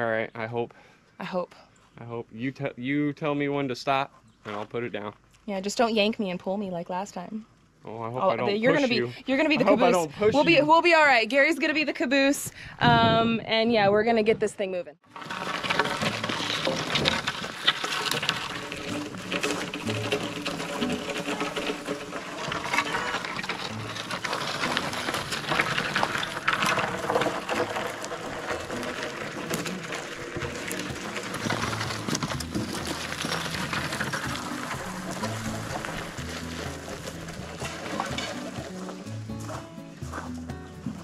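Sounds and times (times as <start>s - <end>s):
fast rhythmic background music: 33.8s - 41.0s.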